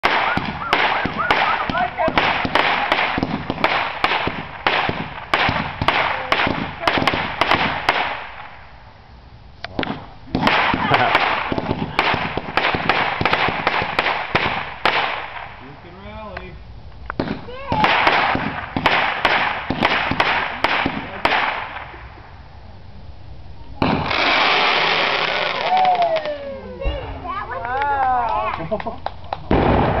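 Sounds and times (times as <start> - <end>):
fireworks bangs and cracks: 0.0 - 8.7, 9.7 - 15.8, 17.1 - 22.1, 23.8 - 27.2, 29.4 - 30.0
fireworks crackling hiss: 0.0 - 27.6.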